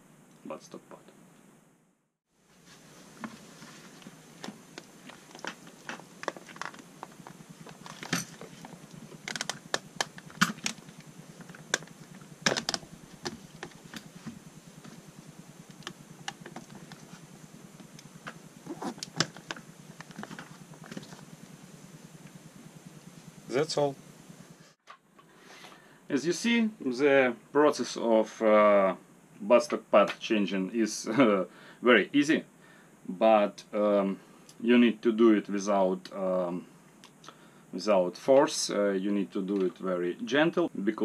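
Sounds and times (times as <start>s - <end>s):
rubber and plastic clicks and knocks: 4.4s - 15.0s.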